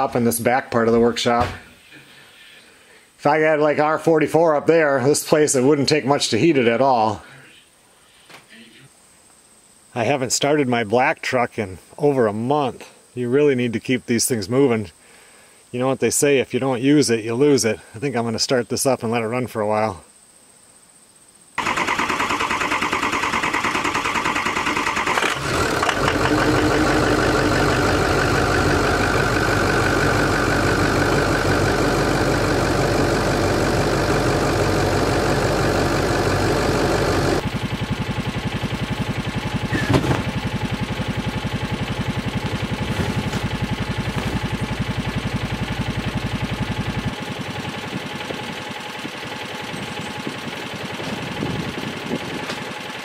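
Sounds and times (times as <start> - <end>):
truck engine idling: 21.6 - 53.0.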